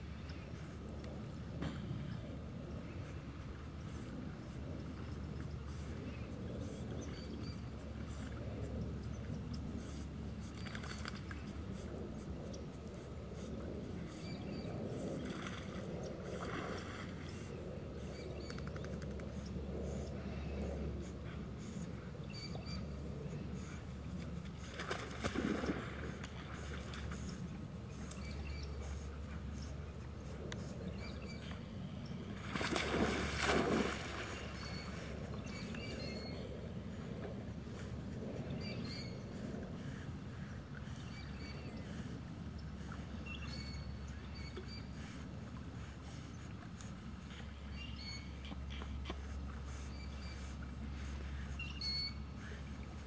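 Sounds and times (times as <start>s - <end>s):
dog swimming: 2.4s - 53.0s
dogs splashing in water: 32.5s - 34.5s.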